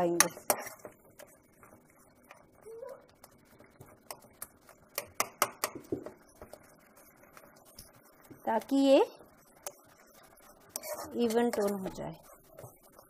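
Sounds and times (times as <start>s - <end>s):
utensil scraping jam in pan: 0.0s - 13.0s
sharp taps against pan: 0.1s - 0.6s, 4.9s - 6.2s.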